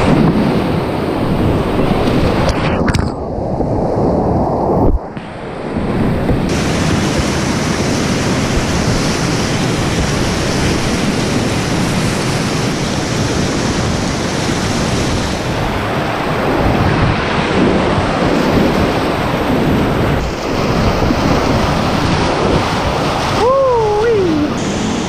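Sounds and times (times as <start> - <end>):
whitewater rapids rushing: 5.2 - 25.0.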